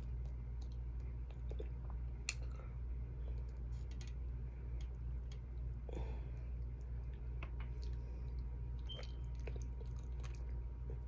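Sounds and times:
steady low hum: 0.0s - 11.0s
faint chewing: 4.8s - 11.0s.

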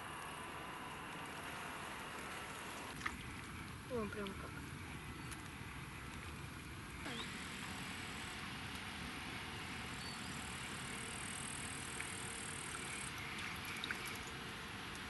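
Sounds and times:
thin high-pitched buzz: 7.0s - 8.4s.

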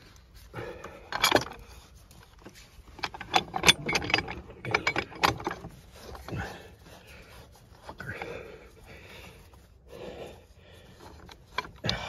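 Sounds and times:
steel parts clinking: 1.1s - 1.6s, 2.2s - 6.3s.

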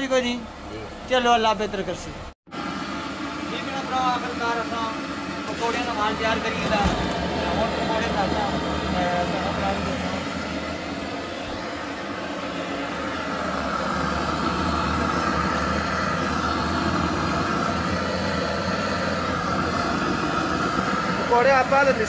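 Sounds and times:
batter sizzling in hot oil: 2.5s - 22.0s.

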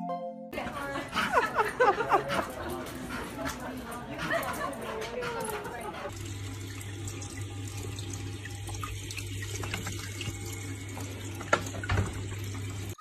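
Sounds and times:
low pump hum: 0.6s - 13.0s
water trickling from aquarium filter: 0.6s - 13.0s.

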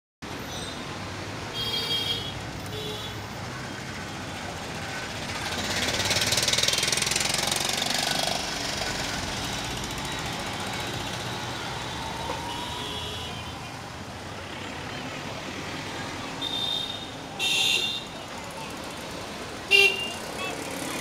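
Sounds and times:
street traffic: 0.2s - 21.0s
motorcycle passing close: 4.8s - 12.3s.

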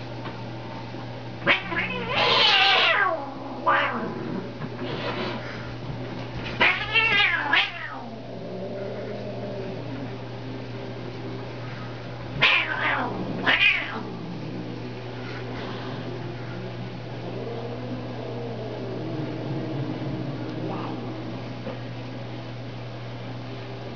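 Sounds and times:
cat yowling: 1.4s - 4.2s, 6.6s - 8.2s, 12.4s - 14.2s.

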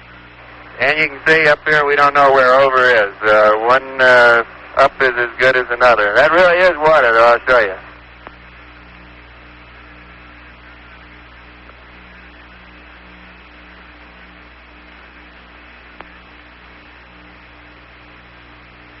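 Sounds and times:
electrical hum and hiss: 0.0s - 19.0s
faint tick: 8.2s - 8.4s, 11.6s - 11.8s, 16.0s - 16.2s.

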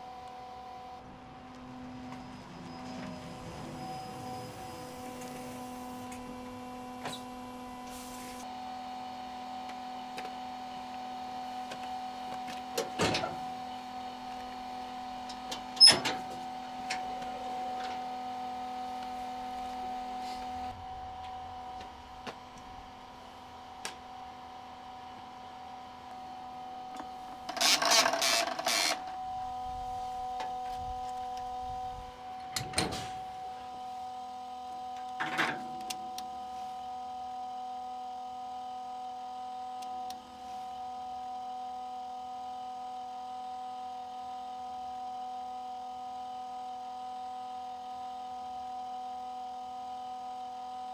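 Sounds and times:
refuelling station hum: 0.0s - 38.2s.

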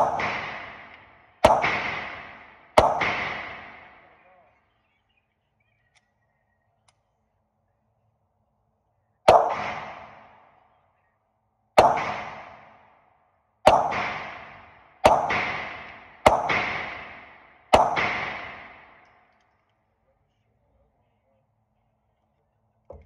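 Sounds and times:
pistol shots indoors: 0.0s - 4.0s, 9.2s - 10.6s, 11.8s - 13.0s, 13.6s - 19.4s.

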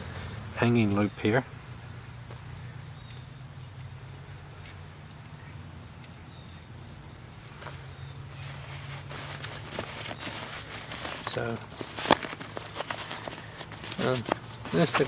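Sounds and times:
insects chirring: 0.0s - 15.0s
nylon pack rustling: 7.5s - 15.0s.

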